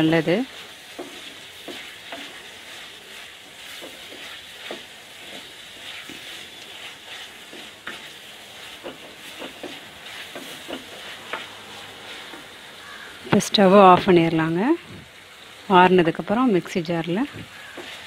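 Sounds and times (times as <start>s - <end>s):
onions and tomatoes sizzling: 0.0s - 18.0s.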